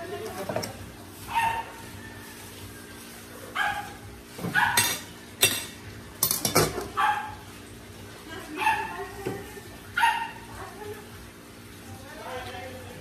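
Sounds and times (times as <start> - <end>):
dog yipping: 1.2 - 2.0, 3.5 - 5.1, 6.9 - 7.4, 8.6 - 9.0, 9.9 - 10.5
metal pot lid clinking: 4.8 - 6.9.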